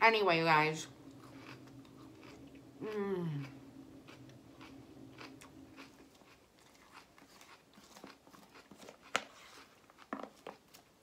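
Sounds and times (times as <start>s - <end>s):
person chewing salad: 1.0s - 11.0s.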